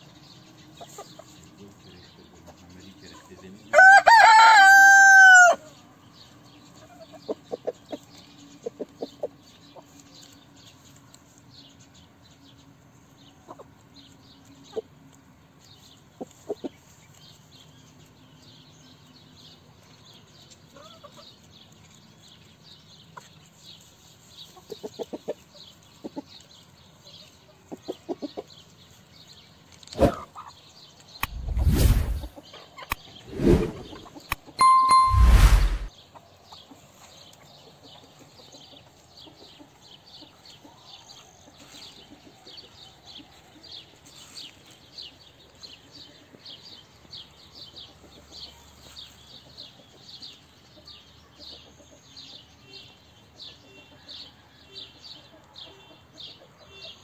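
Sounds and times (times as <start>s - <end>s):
rooster crowing: 3.7s - 5.6s.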